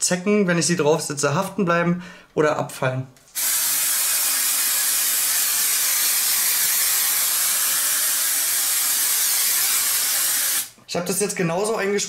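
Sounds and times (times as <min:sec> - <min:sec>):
aerosol spray hissing: 0:03.3 - 0:10.7.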